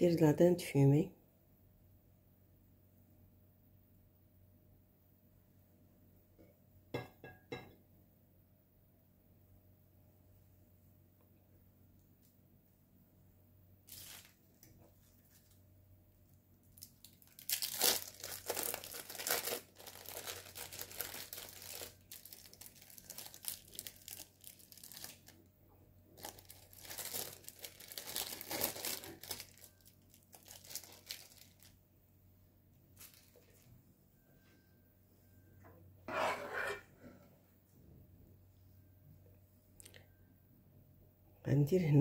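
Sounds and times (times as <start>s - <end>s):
plastic wrapping crinkling: 13.8s - 15.6s, 16.7s - 25.5s, 26.1s - 31.8s, 32.9s - 33.7s.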